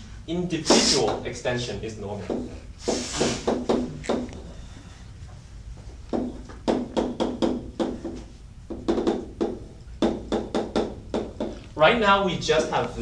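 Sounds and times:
chalk tapping on blackboard: 0:02.3 - 0:04.3, 0:06.1 - 0:11.6.

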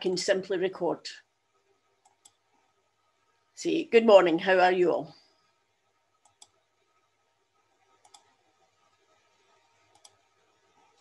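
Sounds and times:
computer mouse clicks: 0:02.0 - 0:02.4, 0:06.2 - 0:06.6, 0:07.9 - 0:08.7, 0:09.9 - 0:11.0.

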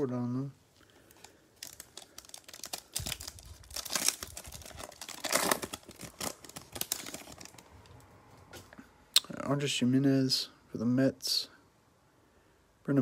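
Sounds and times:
plastic wrapper crinkling: 0:00.7 - 0:08.0.

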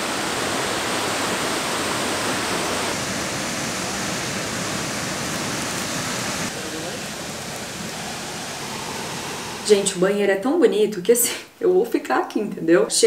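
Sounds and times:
waterfall rushing: 0:00.0 - 0:10.1.

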